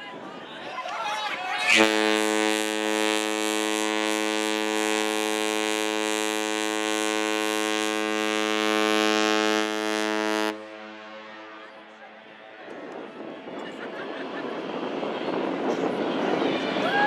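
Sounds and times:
ship's horn blast: 0:01.7 - 0:12.2.

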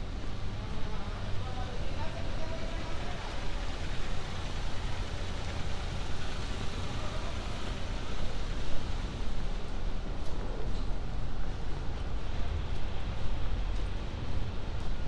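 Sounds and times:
city traffic on wet roads: 0:00.0 - 0:15.0.

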